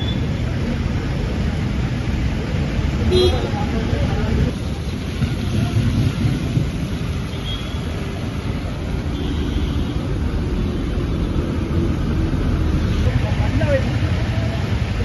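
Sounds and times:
floodwater rushing: 0.0 - 15.0
deep water rumble: 2.1 - 9.0.

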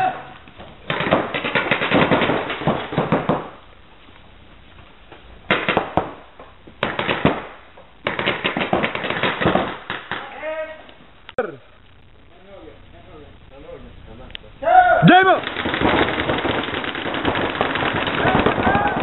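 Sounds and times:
paintball markers firing: 0.8 - 3.6, 5.5 - 6.2, 6.8 - 10.4, 15.4 - 19.0.

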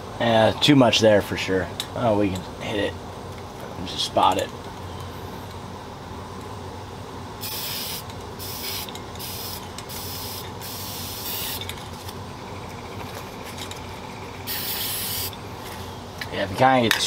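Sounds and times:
spray paint can hissing: 7.4 - 11.6, 14.5 - 15.4.

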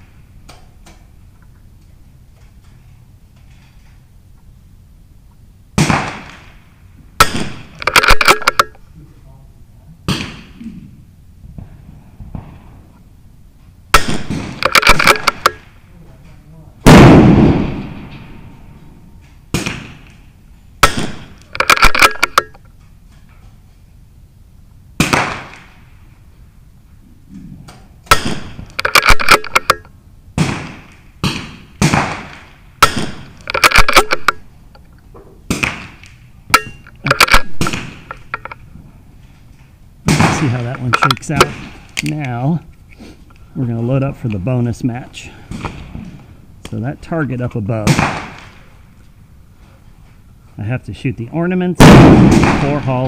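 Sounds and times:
rifle shot: 5.8 - 6.6, 7.2 - 8.8, 10.1 - 10.6, 13.9 - 15.8, 16.8 - 18.7, 19.5 - 20.2, 20.8 - 22.6, 25.0 - 26.0, 28.0 - 34.5, 35.5 - 38.6, 40.1 - 42.0, 47.8 - 48.8, 51.8 - 53.0
sharp clicks: 7.7 - 8.8, 14.0 - 15.7, 20.8 - 22.7, 28.1 - 29.9, 32.3 - 35.0, 36.0 - 38.6, 40.5 - 43.4.

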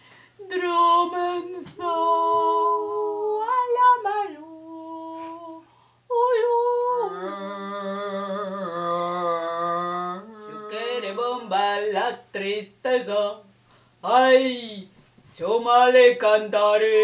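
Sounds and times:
woman singing held notes: 0.4 - 11.6.

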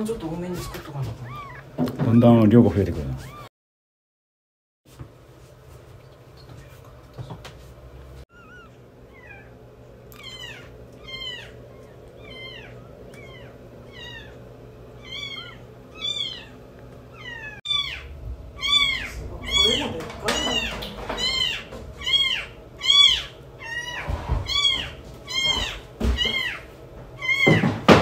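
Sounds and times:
kittens mewing: 0.2 - 2.0, 3.0 - 3.5, 8.3 - 27.8.

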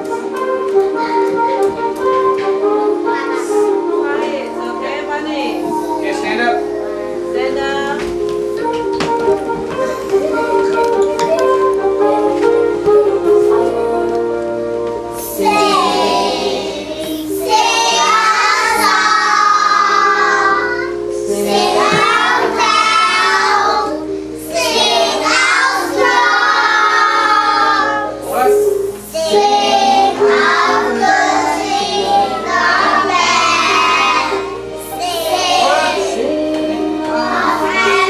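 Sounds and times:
young children singing: 0.0 - 4.0, 15.1 - 38.0
instrumental accompaniment: 0.0 - 38.0.

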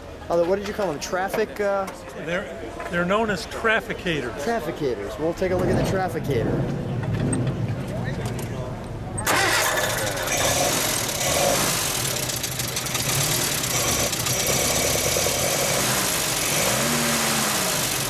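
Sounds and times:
car engine starting and idling: 9.2 - 18.0.

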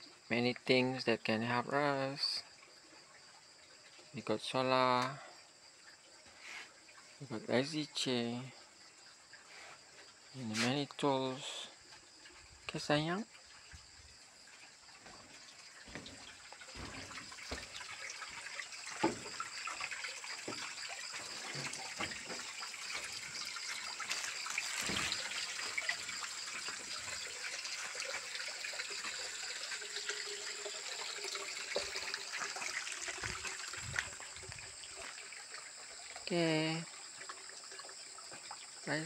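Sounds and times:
water splashing into a bucket: 11.6 - 39.0
footsteps: 15.0 - 19.5, 20.4 - 23.3.

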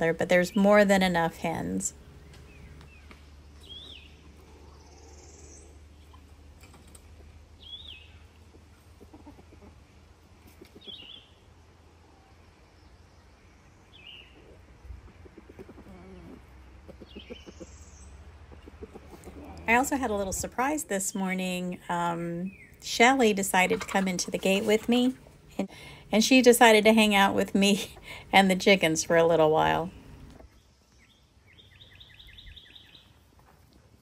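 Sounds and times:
bird chirping: 2.1 - 6.3, 7.0 - 8.8, 10.6 - 11.8, 12.6 - 23.1, 29.8 - 33.2
chickens clucking softly: 8.4 - 11.3, 14.3 - 19.7.

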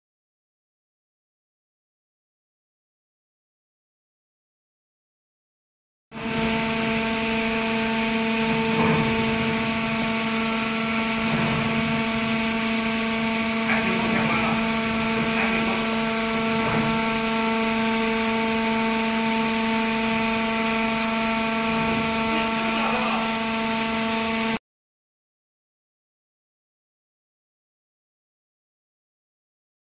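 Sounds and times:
boring machine humming: 6.2 - 24.6.

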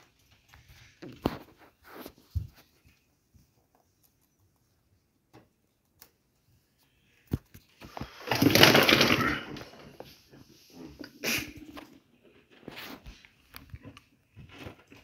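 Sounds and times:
rustling in cage bedding and hay: 0.0 - 4.0, 12.0 - 13.4.

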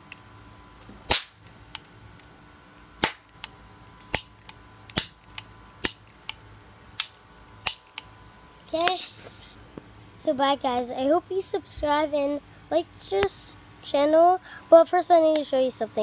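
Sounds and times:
toy cap gun pops: 1.1 - 1.4.

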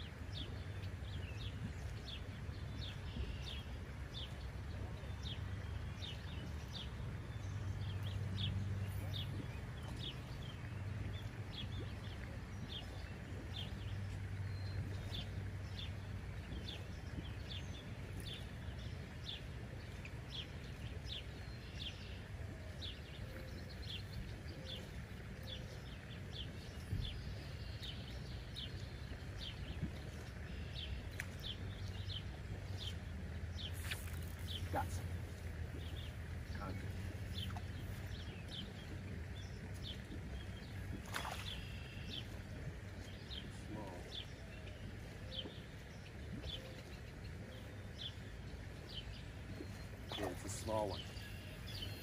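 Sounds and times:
steady low rumble: 22.4 - 50.1.

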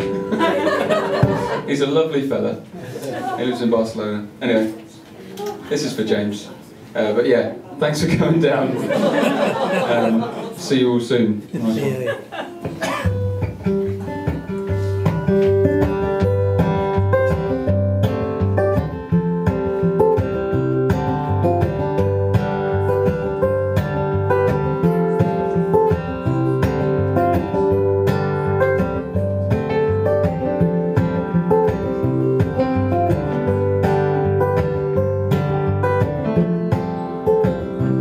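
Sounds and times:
acoustic guitar plucking: 0.0 - 1.8, 11.6 - 38.0.

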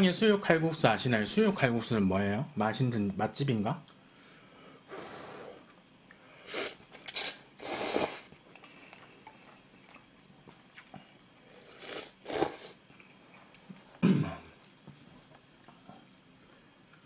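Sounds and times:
noodles being slurped: 6.5 - 9.1, 11.6 - 12.8.

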